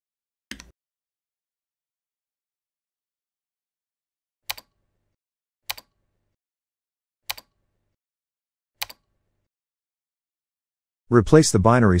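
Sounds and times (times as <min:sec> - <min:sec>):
computer mouse clicks: 0:00.5 - 0:00.7, 0:04.5 - 0:04.8, 0:05.7 - 0:06.0, 0:07.3 - 0:07.6, 0:08.8 - 0:09.1.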